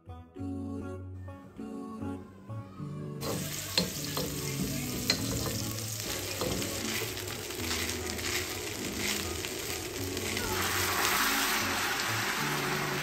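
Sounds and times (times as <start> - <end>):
soft background music: 0.0 - 13.0
rice sizzling in a pan: 3.2 - 13.0.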